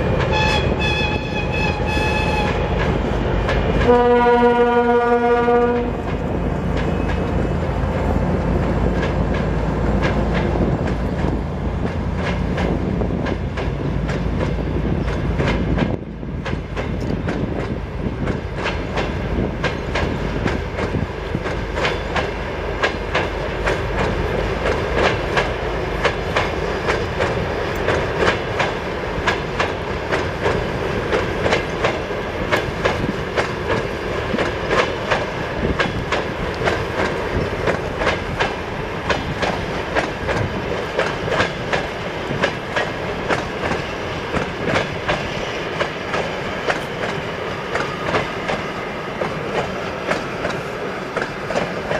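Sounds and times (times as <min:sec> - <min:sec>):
diesel locomotive rumble: 0:00.0 - 0:51.9
train wheels clicking on rail joints: 0:00.0 - 0:51.9
locomotive horn: 0:00.2 - 0:02.8, 0:03.8 - 0:06.1.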